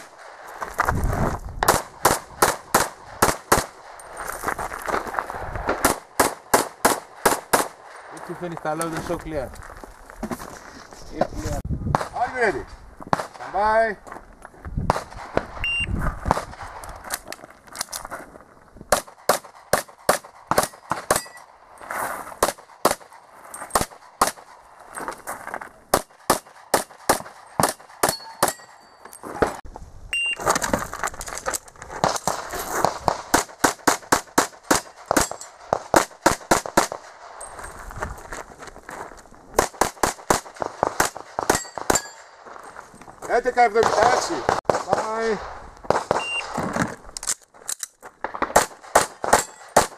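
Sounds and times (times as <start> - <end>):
rapid pistol shots: 1.6 - 3.9, 5.8 - 7.9, 18.9 - 21.3, 25.9 - 28.7, 32.8 - 37.2, 39.6 - 42.2, 48.3 - 49.9
shot timer beep: 15.6 - 16.0, 30.1 - 30.4, 46.2 - 46.5
metallic pings: 20.7 - 21.5, 27.5 - 29.3, 41.5 - 42.3.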